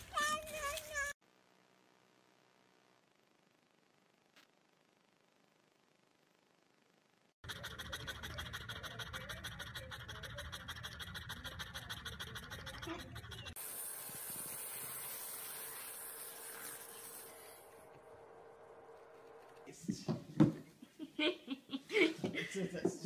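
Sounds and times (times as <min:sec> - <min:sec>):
dog panting: 0:07.4 - 0:13.6
steady hiss: 0:13.6 - 0:17.8
faint hum: 0:16.3 - 0:20.0.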